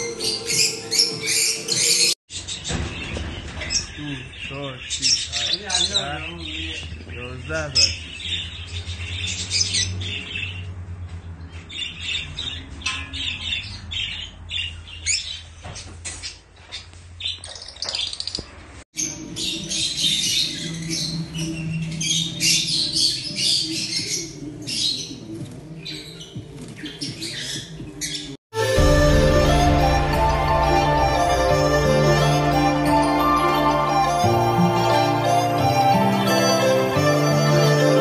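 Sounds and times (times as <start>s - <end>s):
lovebirds chirping and squawking: 0.0s - 10.7s, 11.5s - 28.4s.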